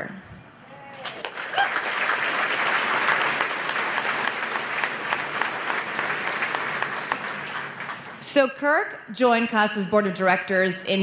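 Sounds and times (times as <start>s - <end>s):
audience applauding: 0.9s - 8.2s.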